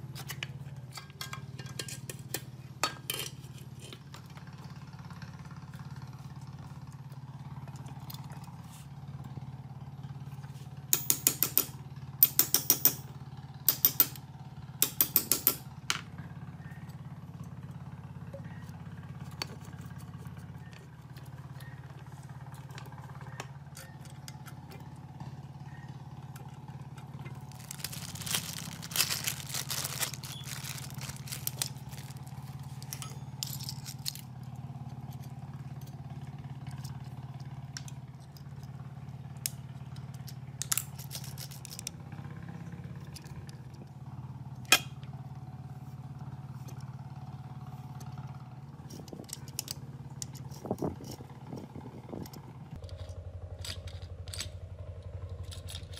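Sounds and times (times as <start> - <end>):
metal bicycle parts clicking and scraping: 0.0 - 4.7, 22.4 - 25.0, 26.3 - 38.8, 39.4 - 41.9, 48.0 - 55.9.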